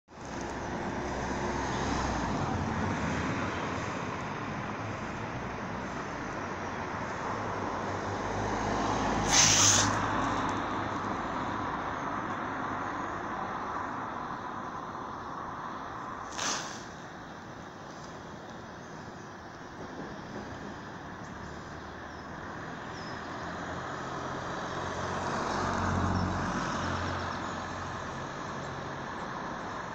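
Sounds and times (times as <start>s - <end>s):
distant traffic rumble: 0.1s - 29.9s
short sharp hiss: 9.2s - 10.1s, 16.2s - 17.1s.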